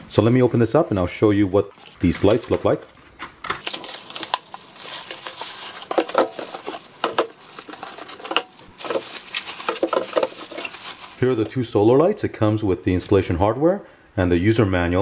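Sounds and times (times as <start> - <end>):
plastic bags crinkling: 1.7 - 11.6
rustles and knocks: 4.3 - 11.5.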